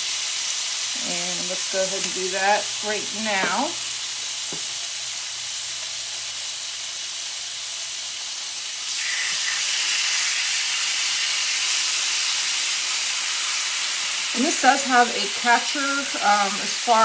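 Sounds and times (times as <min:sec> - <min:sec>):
chicken sizzling on a grill: 0:00.0 - 0:17.0.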